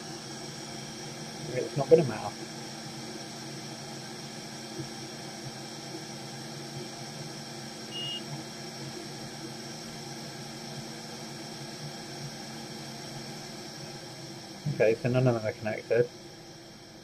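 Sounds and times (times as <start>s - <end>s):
room hiss and hum: 0.0s - 17.0s
high electronic beep: 7.9s - 8.3s.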